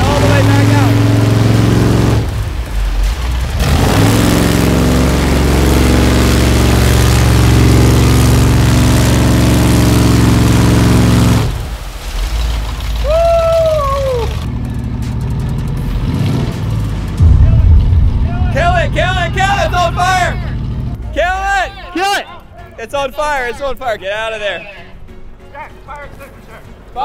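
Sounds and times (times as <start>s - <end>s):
truck engine revving hard: 0.0s - 12.6s, 14.4s - 21.1s
tires spinning in mud: 0.0s - 21.7s.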